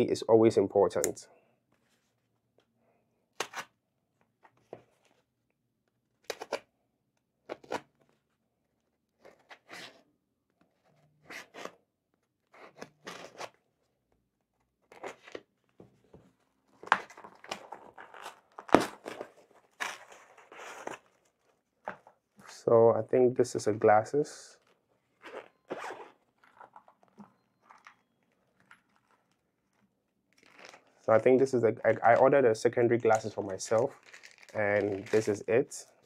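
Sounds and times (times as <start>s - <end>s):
cardboard tearing: 16.8s - 21.4s, 33.8s - 35.4s.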